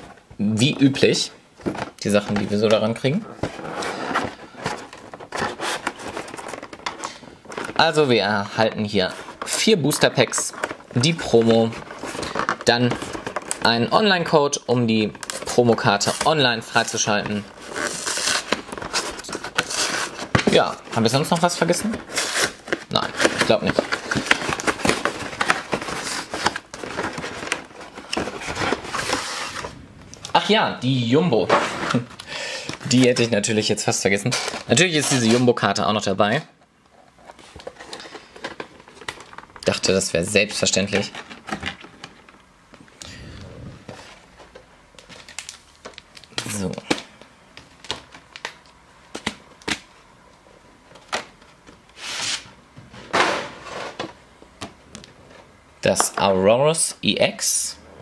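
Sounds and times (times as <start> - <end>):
foil packs crinkling: 8.8 - 14.1, 14.9 - 29.7, 45.0 - 49.9
cardboard box crackling: 15.2 - 29.7.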